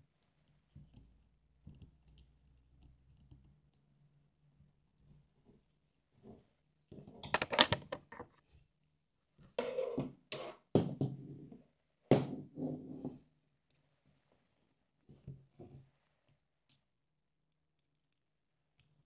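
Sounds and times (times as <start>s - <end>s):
clattering clicks and knocks: 7.2s - 8.4s.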